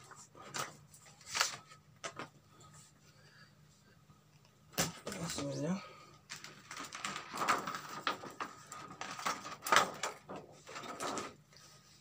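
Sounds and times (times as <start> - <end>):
plastic sheet crackling and rustling: 6.3 - 12.0.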